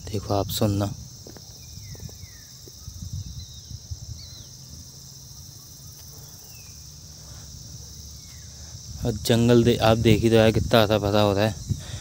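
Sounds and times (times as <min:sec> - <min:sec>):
insects droning: 0:00.0 - 0:12.0
descending whistled bird calls: 0:01.5 - 0:07.5.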